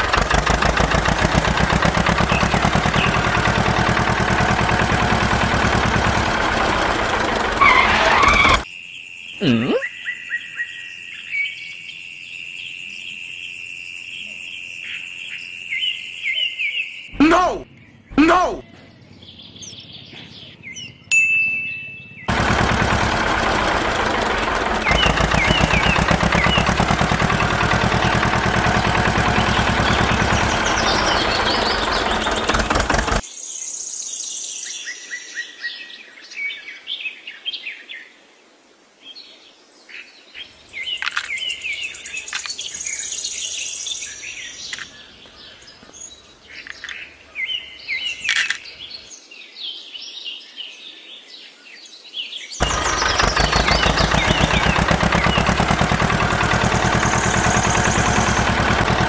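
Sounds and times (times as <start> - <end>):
loud fast pulsing machine: 0.0 - 8.6, 22.3 - 33.2, 52.6 - 59.0
birds chirping: 0.0 - 8.7, 15.8 - 33.2, 40.4 - 49.1, 52.6 - 59.0.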